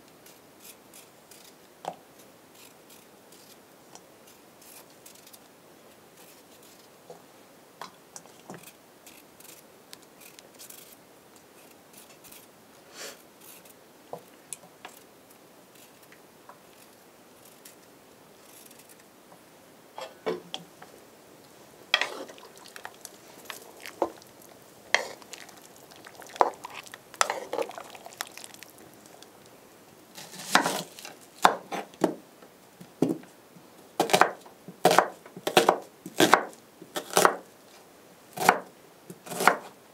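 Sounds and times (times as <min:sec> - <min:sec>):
knife peeling potatoes: 0:08.3 - 0:12.5, 0:22.0 - 0:29.3, 0:34.0 - 0:37.4, 0:39.2 - 0:39.8.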